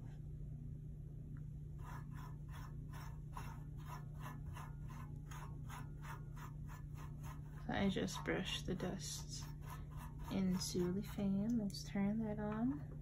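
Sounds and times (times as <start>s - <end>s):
steady low hum: 0.0s - 13.0s
brush scratching metal grille: 1.8s - 11.6s.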